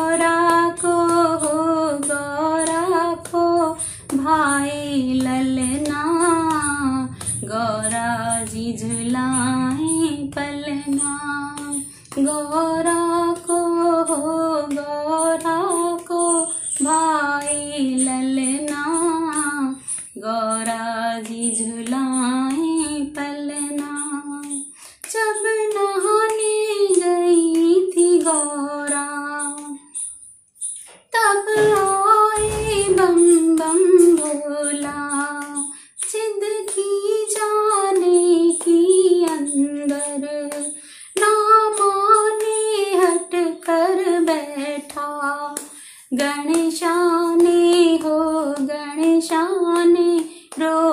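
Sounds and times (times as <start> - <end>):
light high ticking beat: 0.0 - 44.4
woman singing devotional song: 0.0 - 50.9.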